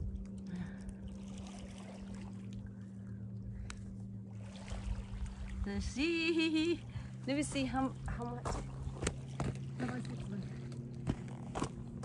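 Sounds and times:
low engine-like hum: 0.0 - 12.0.

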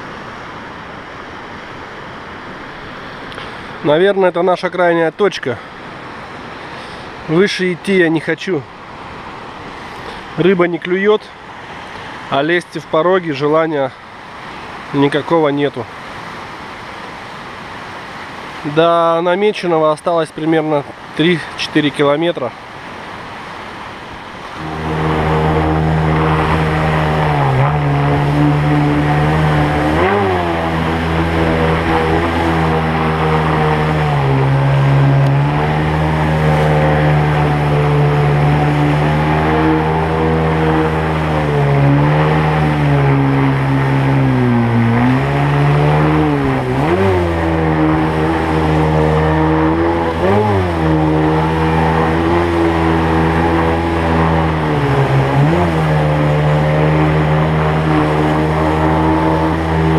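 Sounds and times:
river rushing: 0.0 - 59.9
outboard motor running hard: 1.4 - 4.0, 5.6 - 8.0, 22.6 - 59.9.

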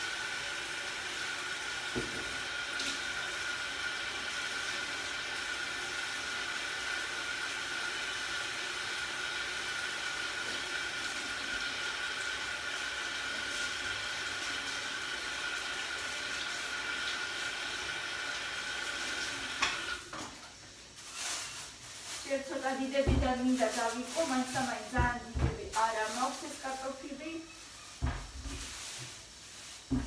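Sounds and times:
tap water running into sink: 0.0 - 20.4.

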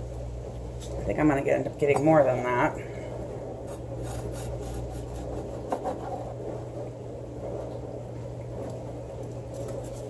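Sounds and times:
low hum: 0.0 - 10.0
knife sawing through biscotti: 3.7 - 6.2.

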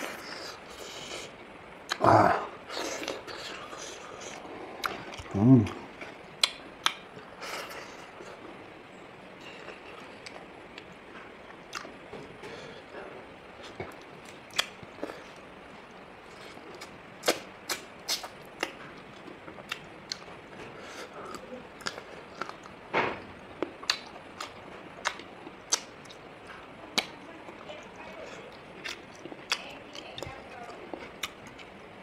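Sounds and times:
person chewing with mouth smacks: 0.0 - 2.0, 2.7 - 8.4, 11.5 - 12.6, 13.6 - 15.4, 16.3 - 22.8, 23.6 - 31.8.

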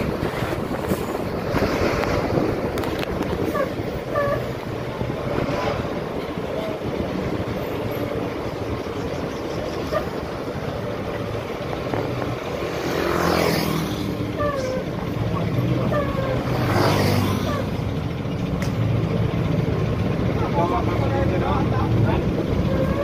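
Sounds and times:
bus engine drone: 0.0 - 23.0
wind and road noise: 0.0 - 23.0
loud whoosh: 4.6 - 7.6.

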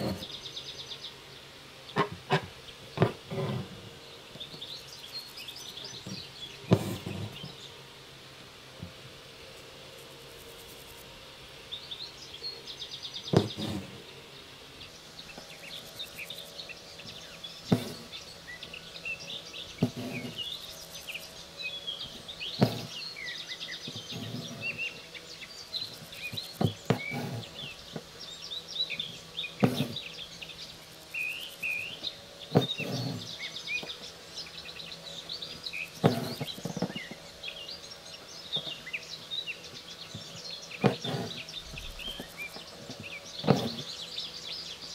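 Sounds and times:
small birds chirping: 0.0 - 8.1, 8.7 - 44.9
thread rasping through fabric: 17.7 - 18.1, 22.6 - 23.0, 26.4 - 27.6, 29.6 - 30.0, 32.5 - 33.3, 36.0 - 37.0, 40.8 - 41.4, 42.9 - 43.9
needle popping through fabric: 22.6 - 22.9, 29.6 - 30.0, 36.0 - 36.9, 43.4 - 43.8.

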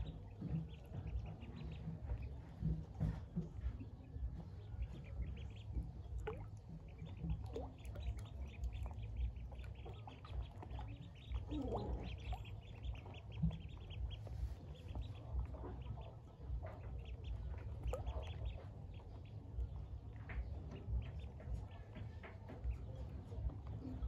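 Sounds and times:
ducklings peeping: 0.0 - 24.0.

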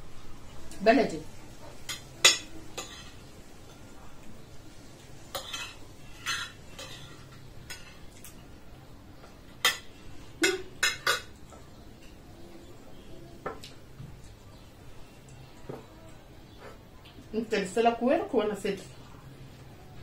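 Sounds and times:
spoons clinking on plates: 1.6 - 4.0, 5.0 - 8.6, 9.2 - 12.3.

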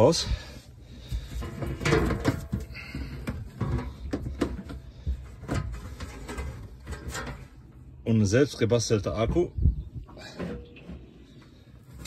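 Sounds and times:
metal box clicks and knocks: 1.4 - 4.8.

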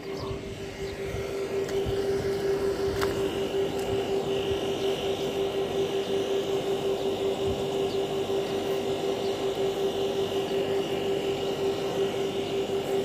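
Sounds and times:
faint high whine: 0.0 - 13.0
steady motor drone: 0.0 - 13.0.

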